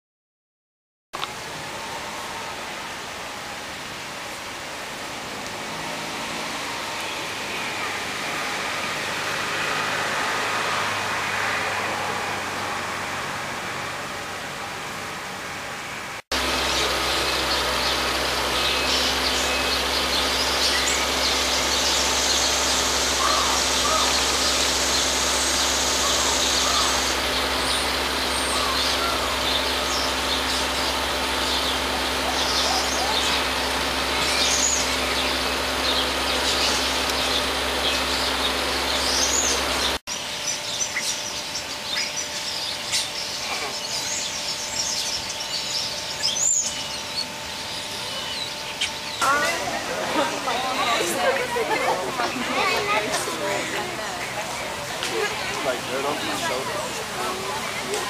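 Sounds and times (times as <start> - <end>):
outdoor background noise: 1.2 - 58.0
birds chirping: 5.5 - 13.2, 16.3 - 58.0.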